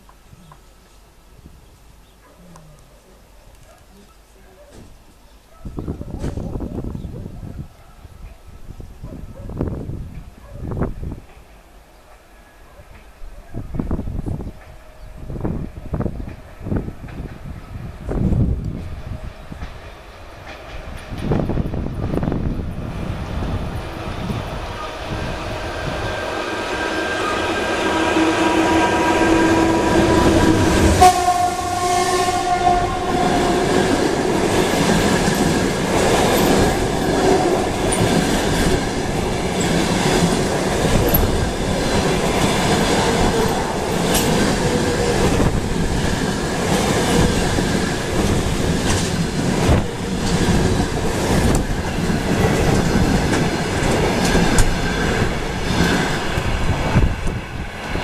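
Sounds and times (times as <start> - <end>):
train wheels clattering: 19.5 - 22.3, 26.0 - 57.4
locomotive horn: 24.8 - 35.0.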